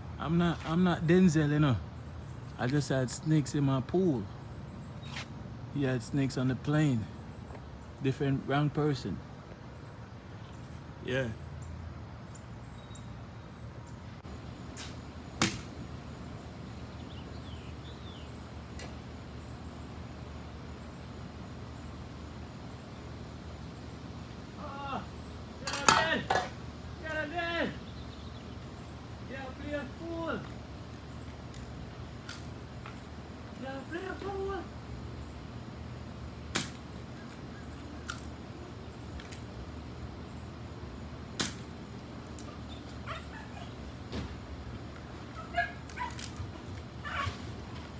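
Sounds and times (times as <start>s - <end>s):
low outdoor hum: 0.0s - 47.9s
bird chirping: 9.2s - 14.2s, 16.1s - 20.1s, 27.0s - 32.0s.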